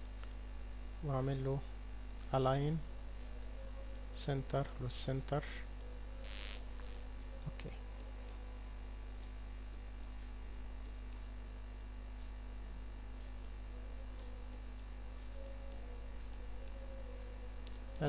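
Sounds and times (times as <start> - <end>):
electrical mains hum: 0.0 - 18.0
faint ticks: 9.1 - 12.4, 13.0 - 16.8.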